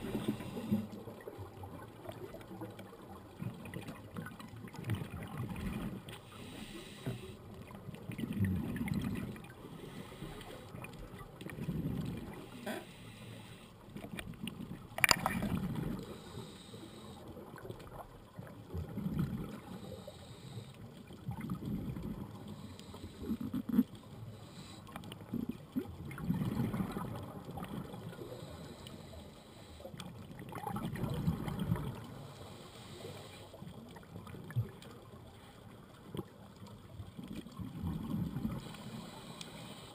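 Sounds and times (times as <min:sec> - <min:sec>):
inhaling hiss through regulator: 0:00.0 - 0:00.9, 0:06.2 - 0:07.4, 0:12.4 - 0:13.8, 0:16.0 - 0:17.2, 0:19.7 - 0:20.8, 0:32.1 - 0:33.6, 0:38.6 - 0:39.9
exhaled bubbles burbling underwater: 0:00.0 - 0:06.1, 0:07.6 - 0:09.8, 0:10.6 - 0:12.6, 0:13.9 - 0:16.2, 0:17.4 - 0:19.8, 0:21.0 - 0:22.6, 0:25.0 - 0:28.5, 0:30.1 - 0:32.3, 0:33.7 - 0:38.7.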